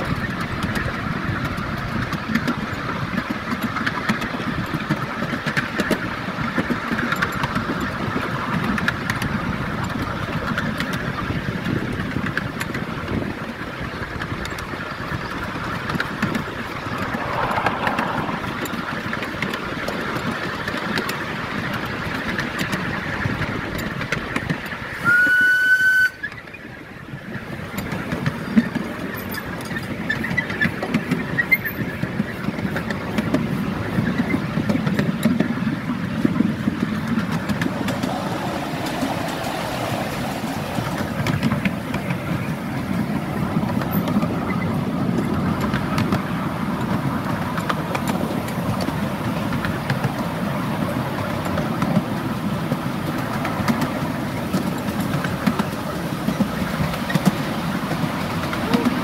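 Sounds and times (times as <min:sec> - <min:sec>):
wheels clattering on rails: 0:00.0 - 0:59.0
steam locomotive whistle: 0:25.0 - 0:26.4.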